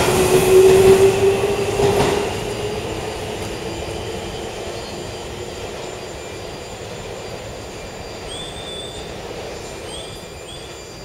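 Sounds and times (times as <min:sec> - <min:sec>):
electric train rumbling: 0:00.0 - 0:11.0
high-pitched train squeal: 0:00.0 - 0:11.0.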